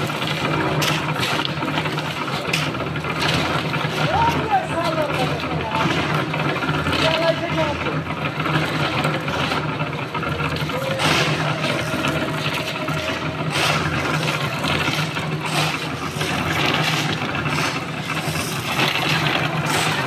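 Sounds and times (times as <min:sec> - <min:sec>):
concrete mixer humming: 0:00.0 - 0:20.0
shovels scraping gravel: 0:10.3 - 0:20.0.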